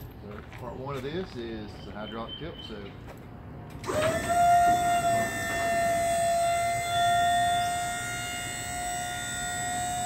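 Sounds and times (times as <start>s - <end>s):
hydraulic pump motor whining: 3.7s - 10.0s.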